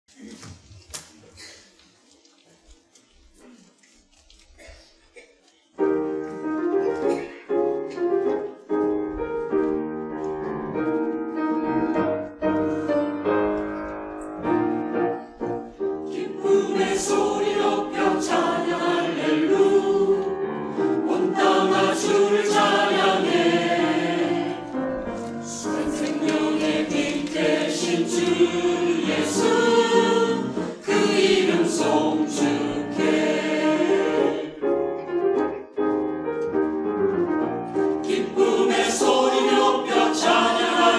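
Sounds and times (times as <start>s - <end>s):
grand piano accompaniment: 5.7s - 40.9s
mixed choir singing: 15.5s - 34.8s, 37.9s - 40.9s.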